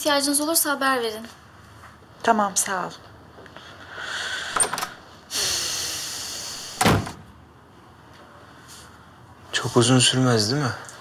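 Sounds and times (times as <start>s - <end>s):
rushing hiss: 5.3s - 6.8s
door shutting with thump: 6.8s - 7.3s.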